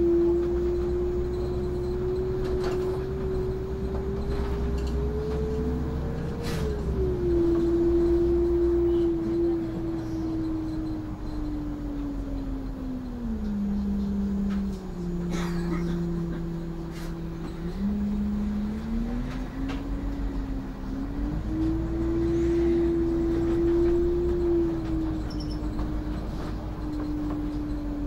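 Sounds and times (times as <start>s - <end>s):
bus engine whine: 0.0s - 28.0s.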